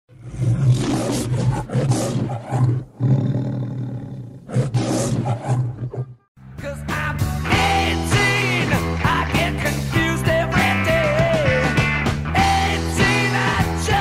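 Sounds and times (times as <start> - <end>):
lion roaring: 0.1 - 6.2.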